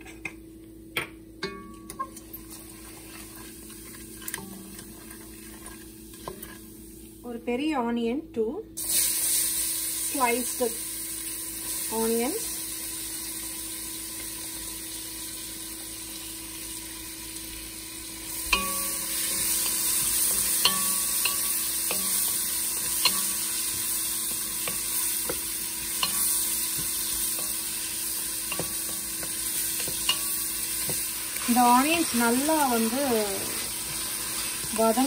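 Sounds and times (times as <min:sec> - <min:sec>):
onions sizzling in oil: 0:01.4 - 0:07.6, 0:08.8 - 0:35.0.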